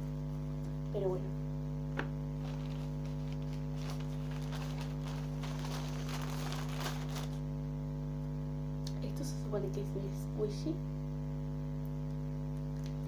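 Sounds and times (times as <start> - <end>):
electrical mains hum: 0.0 - 13.0
crinkly rustling of objects: 2.4 - 7.5.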